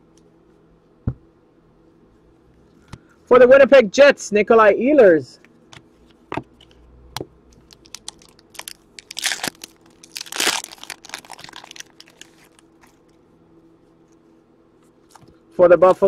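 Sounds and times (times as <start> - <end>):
plastic wrappers crinkling: 7.5 - 13.2.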